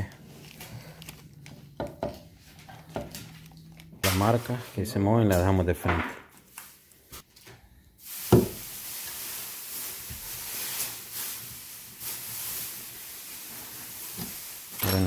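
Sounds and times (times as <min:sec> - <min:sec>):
steady hiss: 0:08.0 - 0:15.0.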